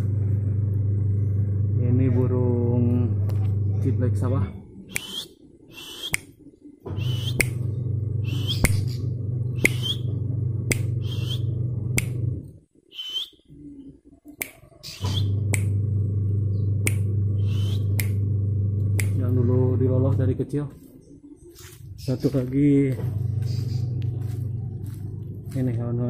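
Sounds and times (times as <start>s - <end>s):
steady low hum: 0.0s - 26.0s
bird chirping: 4.8s - 11.6s, 12.8s - 15.5s, 16.4s - 18.2s, 20.3s - 25.6s.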